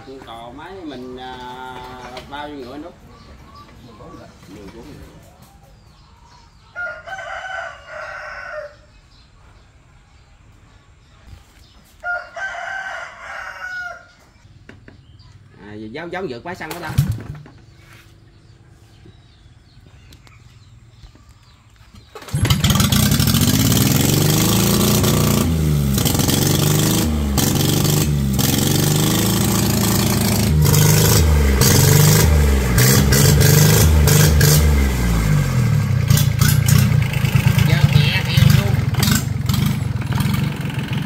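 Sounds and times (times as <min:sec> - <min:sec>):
engine revving loudly: 0:22.2 - 0:41.0.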